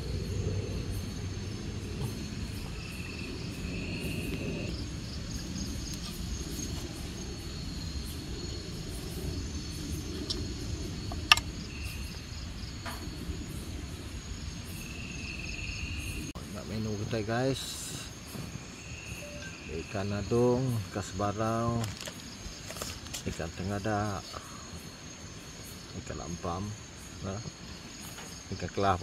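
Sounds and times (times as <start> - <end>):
low rumbling noise: 0.0 - 21.2
crickets trilling: 0.0 - 29.0
short insect call: 0.0 - 29.0.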